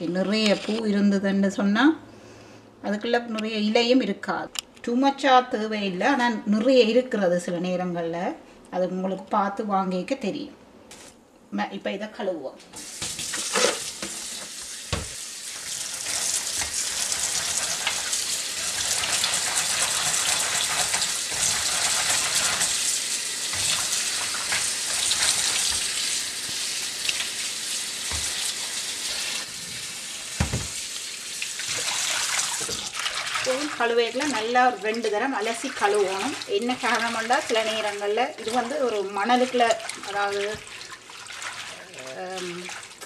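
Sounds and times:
hands rinsing leaves: 12.8 - 43.0
tap water splashing into bowl: 13.0 - 15.7.

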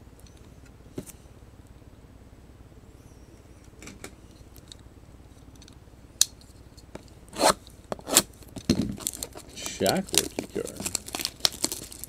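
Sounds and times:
soft plastic rustle: 8.3 - 12.0.

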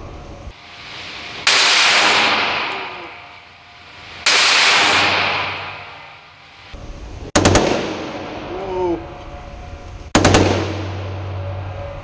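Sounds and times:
rifle shot echoing indoors: 1.5 - 3.1, 4.3 - 6.2, 7.4 - 8.5, 10.1 - 11.2.

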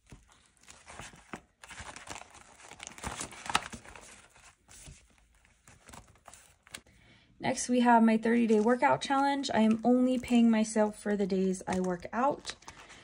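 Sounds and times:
plastic and paper crinkling: 0.0 - 6.9, 8.3 - 13.0.

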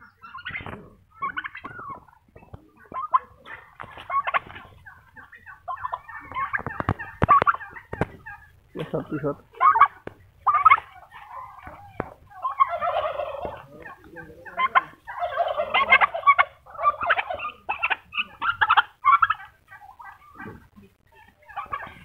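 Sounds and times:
turkeys gobbling: 0.0 - 22.0.

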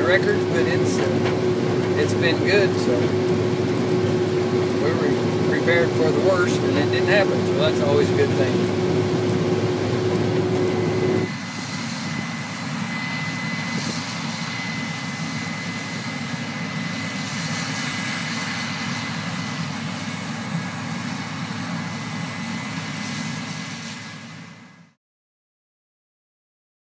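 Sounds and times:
combines droning: 0.0 - 11.4
thin high whine: 0.0 - 16.0
tractor and auger humming: 0.0 - 22.6.

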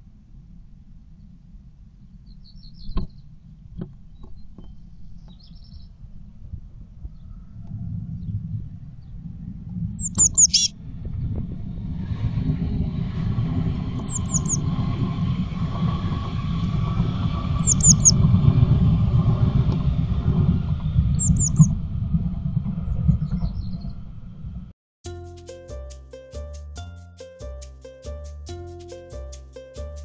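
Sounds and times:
blue tits calling: 10.0 - 10.7, 14.1 - 14.6, 17.6 - 18.2, 21.2 - 21.7.

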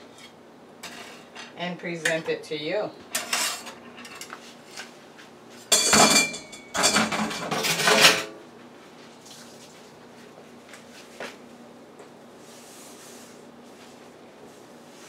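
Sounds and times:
metal tray and spatula clattering: 3.1 - 4.8, 5.7 - 8.4
metallic ring: 5.7 - 7.1.

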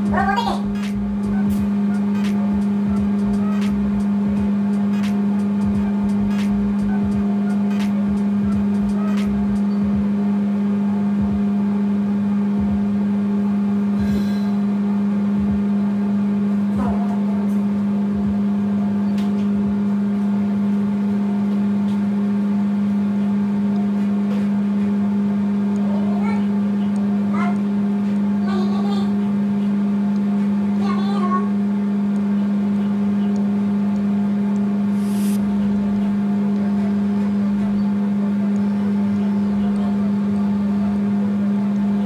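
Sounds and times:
engine humming steadily: 0.0 - 42.0.

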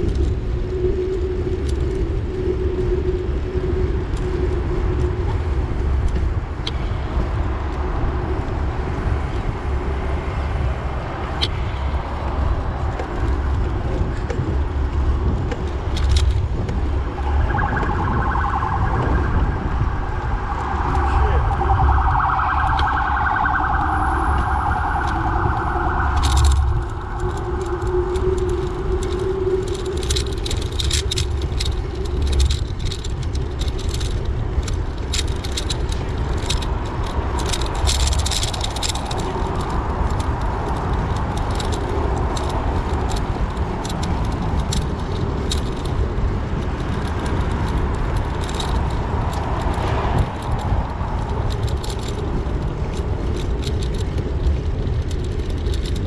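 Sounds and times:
road traffic rumble: 0.0 - 56.0
light rattling clicks: 11.3 - 18.8, 24.3 - 56.0
warbling alarm tone: 17.1 - 30.8.

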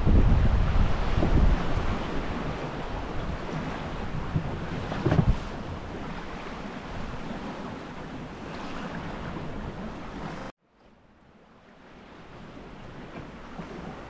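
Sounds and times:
wind on microphone: 0.0 - 10.5
water splashing past hull: 0.0 - 14.0.

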